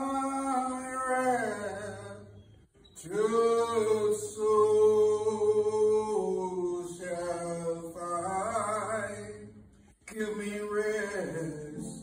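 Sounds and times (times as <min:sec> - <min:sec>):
man singing long notes: 0:03.0 - 0:09.5.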